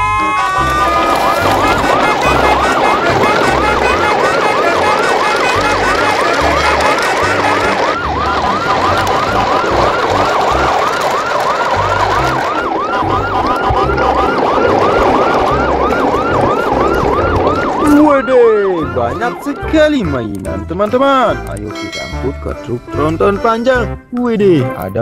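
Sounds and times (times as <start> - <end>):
electronic siren wailing: 0.0 - 20.2.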